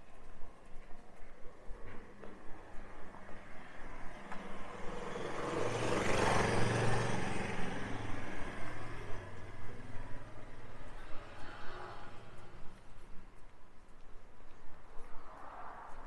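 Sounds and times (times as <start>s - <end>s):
vehicle driving past: 3.2s - 13.2s.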